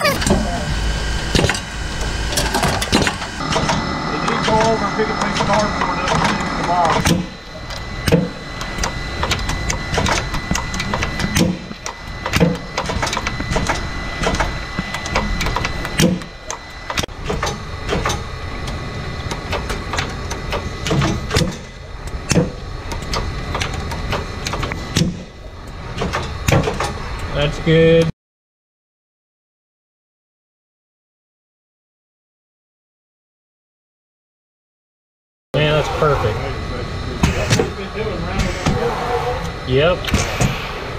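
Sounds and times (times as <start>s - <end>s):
faint high whine: 0.0s - 17.0s
packaging machine humming: 0.0s - 28.0s, 35.6s - 40.9s
machine clicks and knocks: 2.3s - 27.3s.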